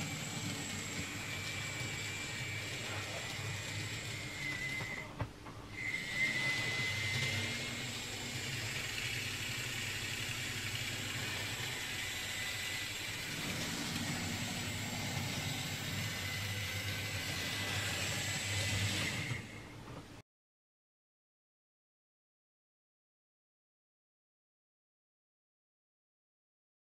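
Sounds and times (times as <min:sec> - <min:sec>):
model tram motor whine: 0:00.0 - 0:19.9.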